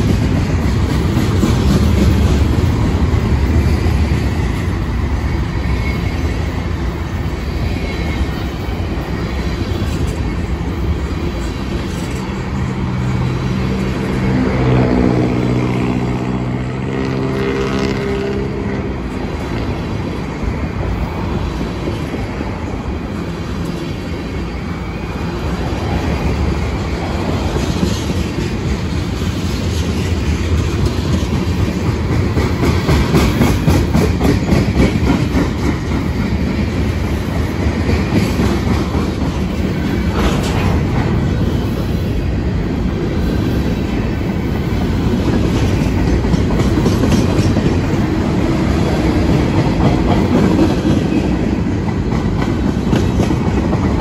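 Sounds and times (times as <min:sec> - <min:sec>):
freight train rumbling: 0:00.0 - 0:54.0
wheels clicking over rail joints: 0:44.7 - 0:54.0.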